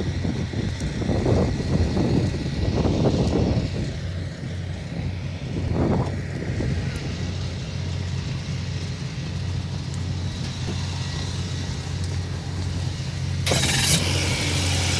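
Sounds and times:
truck engine idling: 0:03.2 - 0:14.9.

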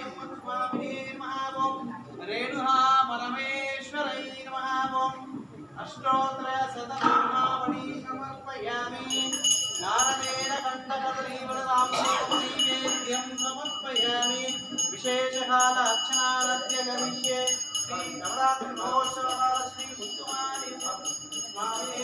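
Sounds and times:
brass hand bell ringing rapidly: 0:09.0 - 0:22.0.

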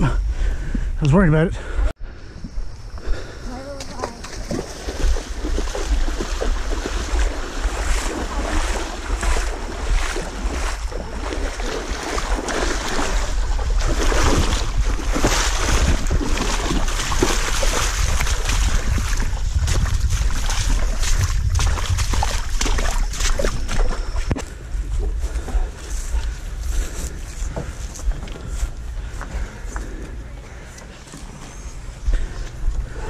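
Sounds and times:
wind rumble on microphone: 0:01.6 - 0:30.2
water splashing: 0:03.5 - 0:24.5.

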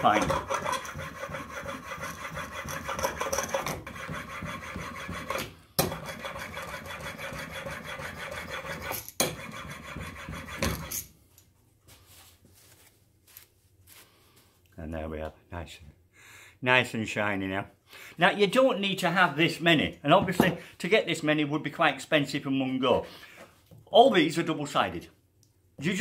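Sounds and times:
chisel rasping on sharpening plate: 0:00.0 - 0:11.0.

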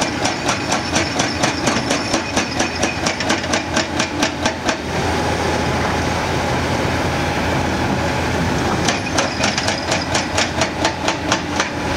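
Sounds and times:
hydraulic hammer striking: 0:00.0 - 0:04.9, 0:08.8 - 0:11.8
excavator engine running: 0:00.0 - 0:11.9.

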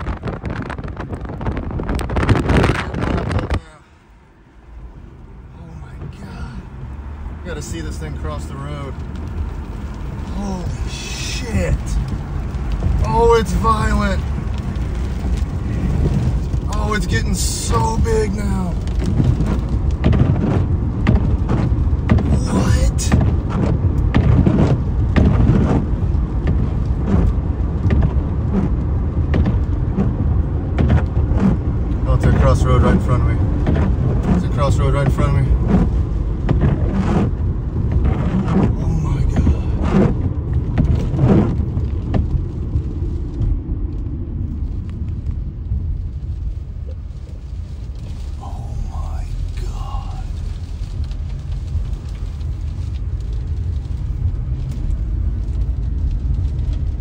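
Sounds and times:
car road noise rumble: 0:00.0 - 0:57.0
knocks and thumps: 0:18.9 - 0:32.4, 0:33.5 - 0:42.5.

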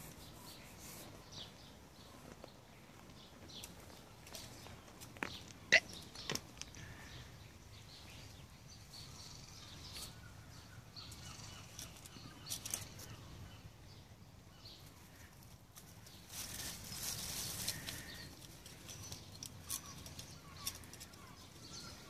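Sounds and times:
animals scuffing and clicking: 0:00.0 - 0:07.2, 0:11.0 - 0:13.3, 0:14.6 - 0:22.0.

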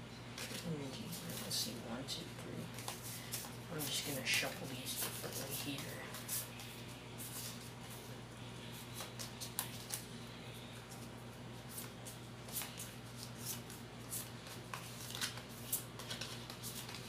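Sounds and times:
trading cards being shuffled: 0:08.8 - 0:10.1, 0:10.8 - 0:17.0.

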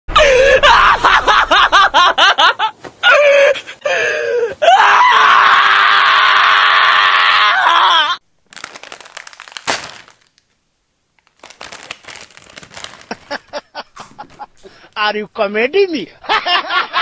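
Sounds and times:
person laughing hard: 0:00.2 - 0:04.1, 0:13.0 - 0:14.6, 0:16.2 - 0:17.0
long loud scream: 0:04.2 - 0:08.2.

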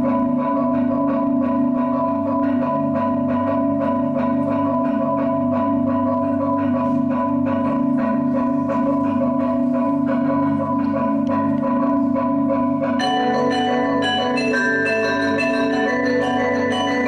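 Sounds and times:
marimbas and vibraphones playing: 0:00.0 - 0:17.0.

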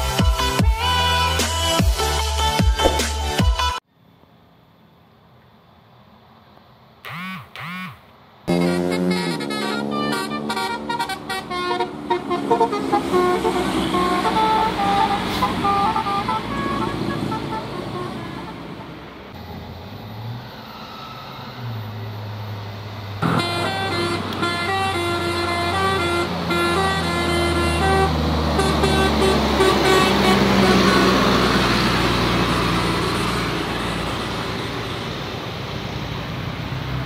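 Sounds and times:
multi-tone bus horn melody: 0:00.0 - 0:03.8, 0:07.1 - 0:19.4, 0:23.2 - 0:34.5
road noise: 0:00.0 - 0:37.0
bus engine running: 0:08.3 - 0:37.0.

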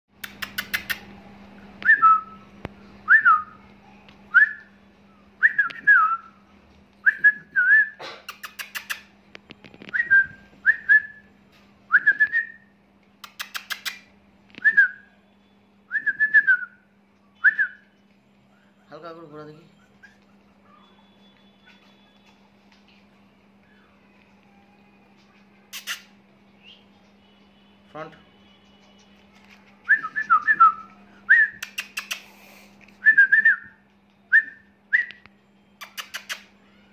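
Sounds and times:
person whistling: 0:29.9 - 0:31.8, 0:33.0 - 0:35.2.

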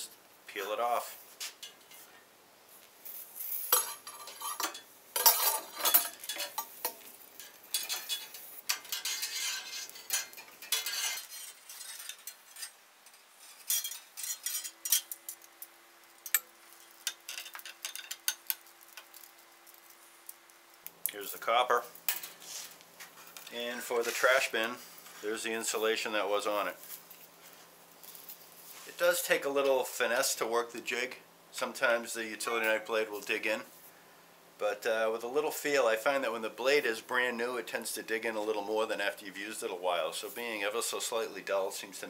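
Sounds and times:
wire insulation scraping and rustling: 0:00.6 - 0:30.3.

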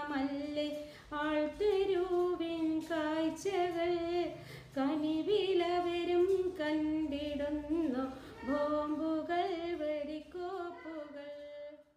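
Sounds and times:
woman singing unaccompanied: 0:00.0 - 0:11.9
singer breathing in: 0:04.4 - 0:04.7.

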